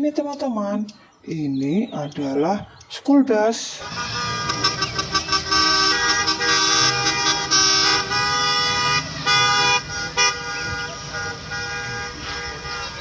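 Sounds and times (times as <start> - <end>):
bus engine running: 3.8 - 13.0
bus horn honking: 3.8 - 13.0.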